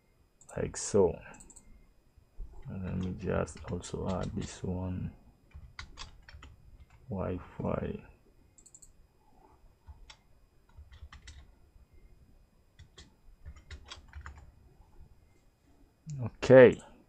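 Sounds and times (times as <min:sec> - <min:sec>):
typing on computer keyboard: 0:02.9 - 0:04.6, 0:05.5 - 0:07.0, 0:08.6 - 0:08.9, 0:09.8 - 0:11.5, 0:12.8 - 0:14.5.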